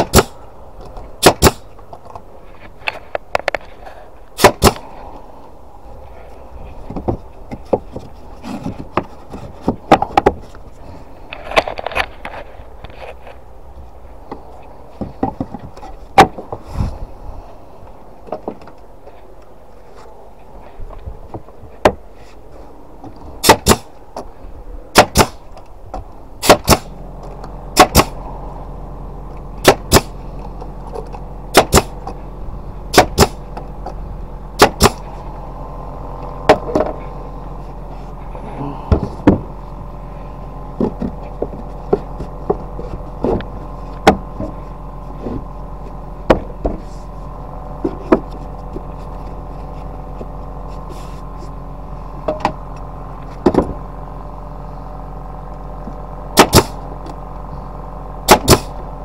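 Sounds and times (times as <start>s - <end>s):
nail gun firing into wood: 0.0s - 0.4s, 1.2s - 1.7s, 4.4s - 4.8s, 23.4s - 23.9s, 24.9s - 25.4s, 26.4s - 26.9s, 27.8s - 28.2s, 29.6s - 30.2s, 31.5s - 32.0s, 32.9s - 33.4s, 34.6s - 35.0s, 56.4s - 56.8s, 58.3s - 58.8s
steady hum: 0.0s - 59.0s.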